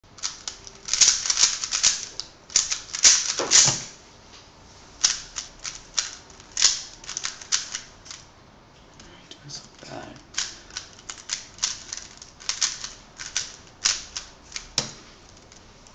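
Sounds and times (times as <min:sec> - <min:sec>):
plastic puzzle cube clicking: 0:00.2 - 0:03.8, 0:05.0 - 0:08.2, 0:10.2 - 0:14.7.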